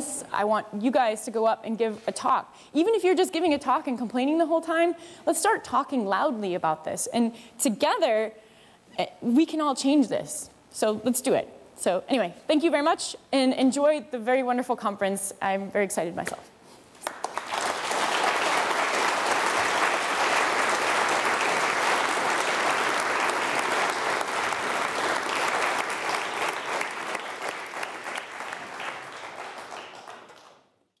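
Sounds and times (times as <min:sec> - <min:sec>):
audience applauding: 0:17.0 - 0:30.7.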